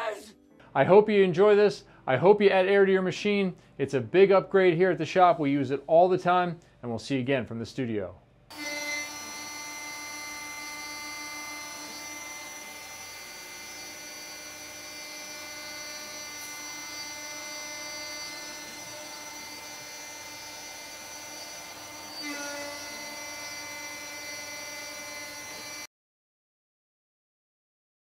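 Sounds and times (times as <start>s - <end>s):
end mill cutting metal: 8.5s - 25.9s.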